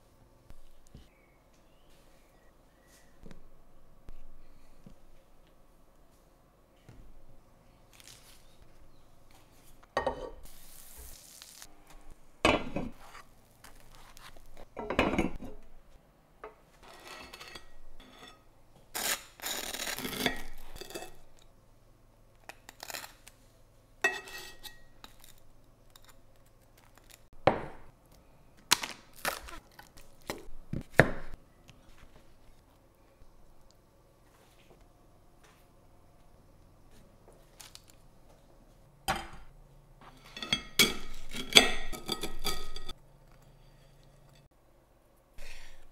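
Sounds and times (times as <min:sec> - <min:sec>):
cutlery scraping and clinking: 0:16.8 - 0:18.5, 0:19.6 - 0:21.3, 0:24.1 - 0:25.4, 0:40.1 - 0:44.5.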